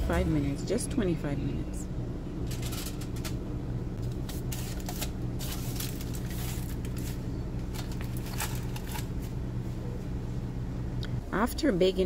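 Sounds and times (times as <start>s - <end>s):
steady low hum: 0.0s - 12.0s
foil crinkling and clicks: 4.0s - 9.3s.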